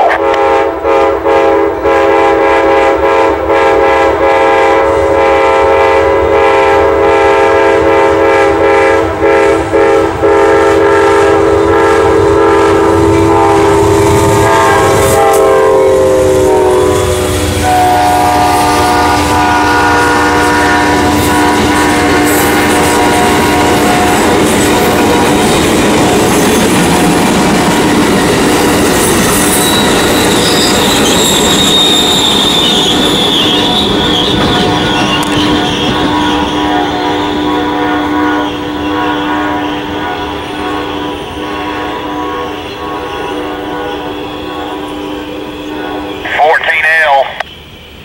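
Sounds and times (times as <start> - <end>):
locomotive air horn blowing: 0.0 - 25.2, 34.4 - 46.2
passing train rumble and clatter: 0.0 - 46.4.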